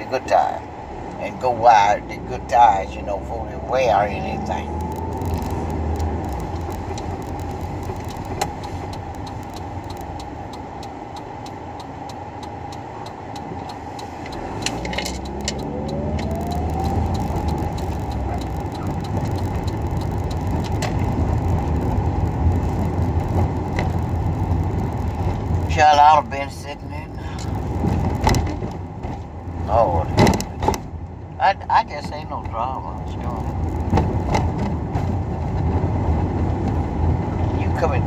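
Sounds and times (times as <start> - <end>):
car cabin road rumble: 0.0 - 38.0
engine whine rising: 0.8 - 25.8.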